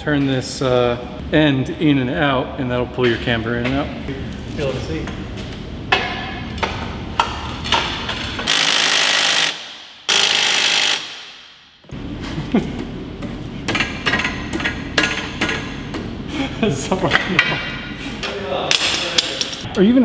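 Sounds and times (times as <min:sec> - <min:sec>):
pneumatic impact wrench: 0:08.4 - 0:11.5.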